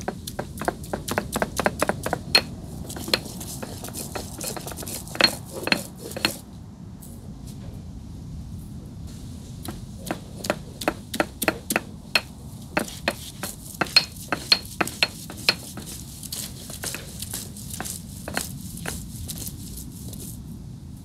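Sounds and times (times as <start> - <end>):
utensils clinking on metal cookware: 2.3 - 6.4.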